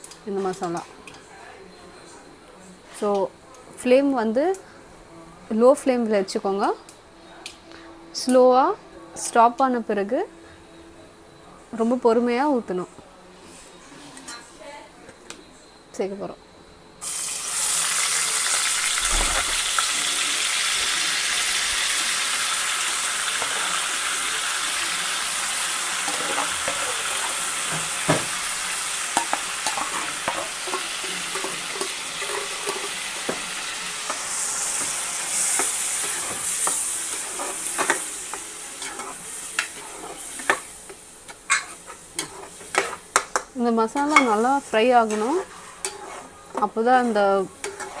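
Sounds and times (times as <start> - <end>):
paste sizzling in hot oil: 17.0 - 43.3, 47.0 - 48.0
spoon stirring against metal pot: 29.2 - 33.4, 34.1 - 44.4, 45.0 - 48.0.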